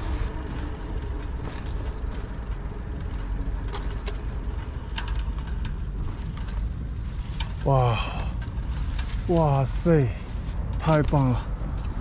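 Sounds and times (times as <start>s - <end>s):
bicycle tyres rolling: 0.0s - 12.0s
bike clicks and rattles: 0.0s - 12.0s.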